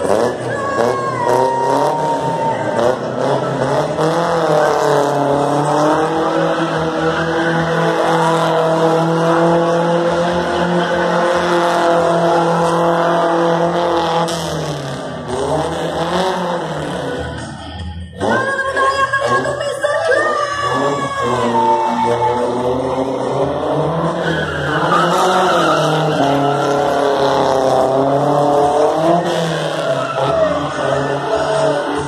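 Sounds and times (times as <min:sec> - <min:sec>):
car engine revving: 0:00.0 - 0:32.0
tyres screeching on tarmac: 0:19.3 - 0:32.0.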